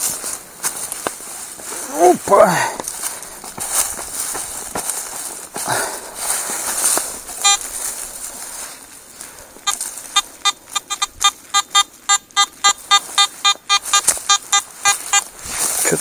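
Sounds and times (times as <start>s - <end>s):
metal detector beeping: 7.4s - 7.9s, 9.6s - 15.4s.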